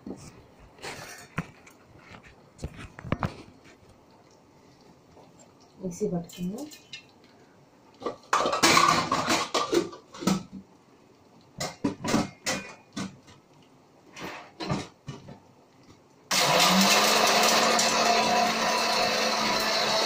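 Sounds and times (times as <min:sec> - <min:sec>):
electric mixer grinder whirring: 0:16.3 - 0:20.0.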